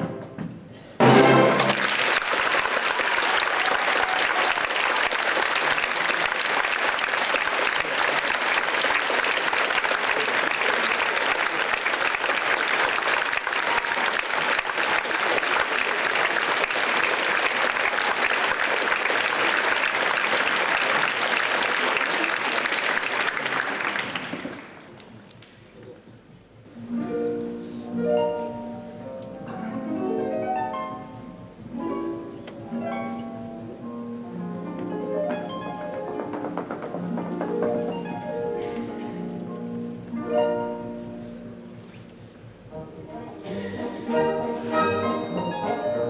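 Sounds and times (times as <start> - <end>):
audience applauding: 1.5 - 25.6.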